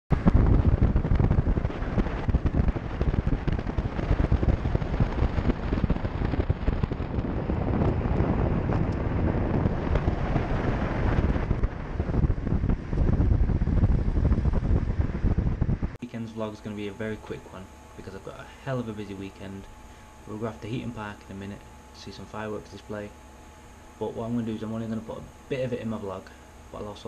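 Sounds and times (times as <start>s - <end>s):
wind buffeting microphone: 0.1s - 21.2s.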